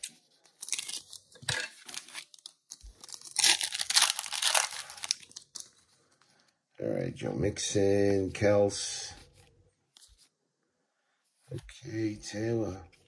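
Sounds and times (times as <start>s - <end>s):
foil wrapper crinkling: 0.0s - 5.8s
foil wrapper tearing: 0.6s - 1.2s, 1.8s - 5.6s.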